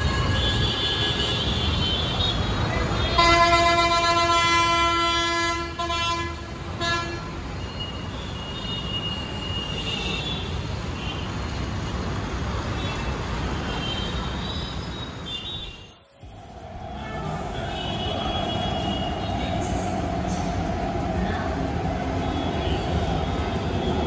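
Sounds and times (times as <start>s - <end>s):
loud steady car horn: 0.0s - 11.2s, 16.9s - 19.3s
city traffic: 0.0s - 24.0s.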